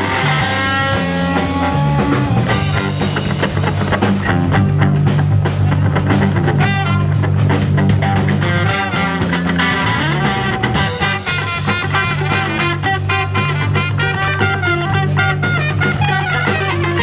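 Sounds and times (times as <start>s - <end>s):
trumpet: 0.0s - 3.1s, 6.4s - 7.5s, 8.2s - 17.0s
saxophone: 0.0s - 3.2s, 6.4s - 17.0s
trombone: 0.0s - 3.5s, 6.3s - 17.0s
bass guitar: 0.0s - 17.0s
drum kit: 0.0s - 17.0s
electric guitar: 0.0s - 17.0s.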